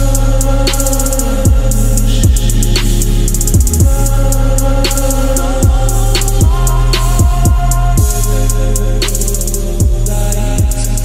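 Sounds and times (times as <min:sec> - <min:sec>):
electronic hip-hop instrumental: 0:00.0 - 0:11.0.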